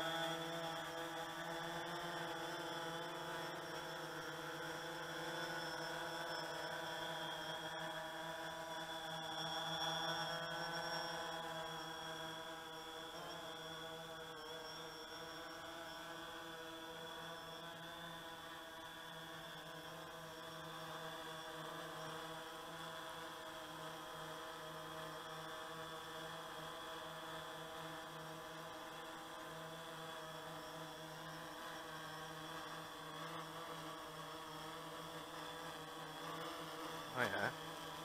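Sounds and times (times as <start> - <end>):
quadcopter propellers humming: 0.0 - 38.0.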